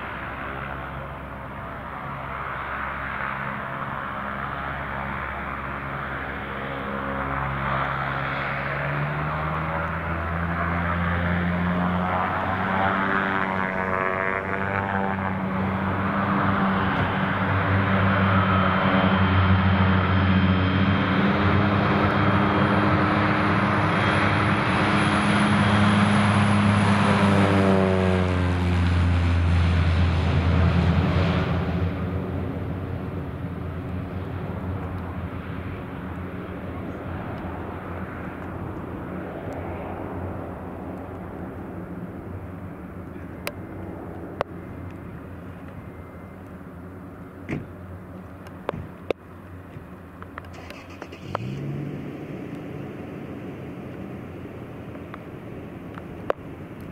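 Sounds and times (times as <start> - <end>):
propeller drone: 0.0 - 56.9
turboprop engine hum: 0.0 - 56.9.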